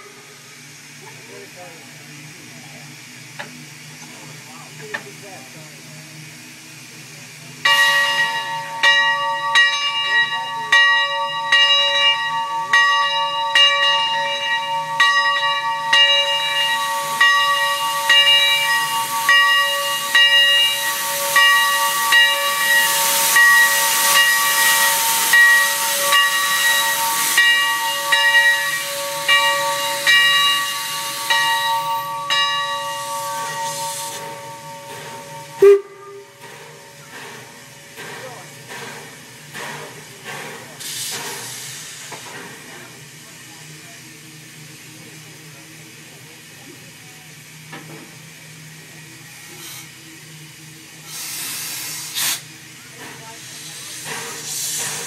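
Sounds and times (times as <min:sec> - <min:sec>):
hiss of escaping steam: 0:00.0 - 0:10.3, 0:11.0 - 0:55.0
steam whistle chord: 0:12.4 - 0:36.9.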